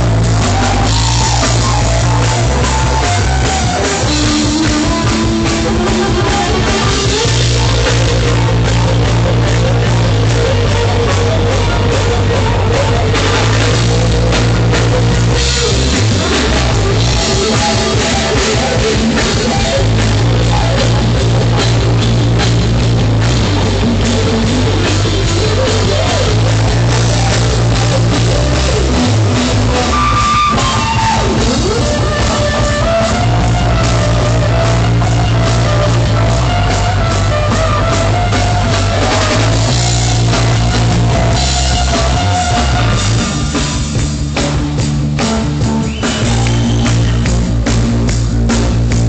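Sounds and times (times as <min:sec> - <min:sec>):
high melodic line: 0:00.0 - 0:49.0
rock band playing: 0:00.0 - 0:49.0.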